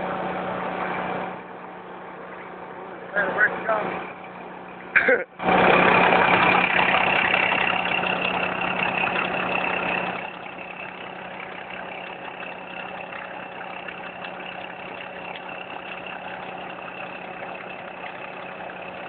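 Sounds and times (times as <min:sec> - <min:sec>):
truck engine idling: 0:00.0 - 0:19.0.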